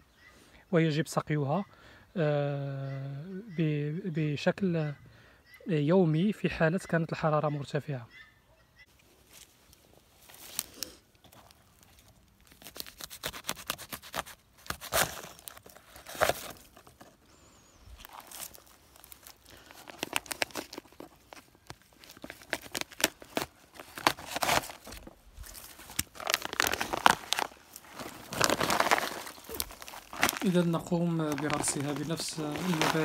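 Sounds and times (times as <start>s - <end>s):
plastic bag crinkling and tearing: 10.2s - 17.1s, 17.9s - 33.0s.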